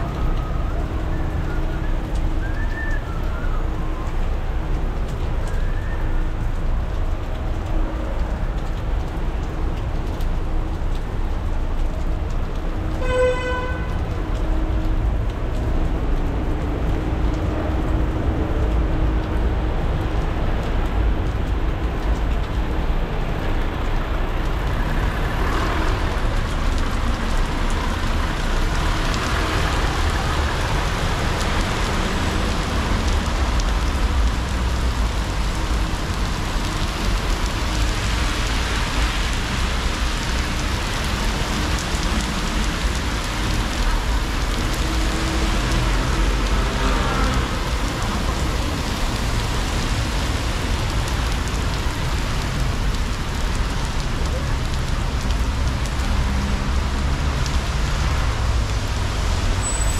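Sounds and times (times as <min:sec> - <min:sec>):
rain: 0:00.0 - 0:59.9
traffic engine rumble: 0:00.0 - 0:59.9
car horn toot: 0:13.0 - 0:13.9.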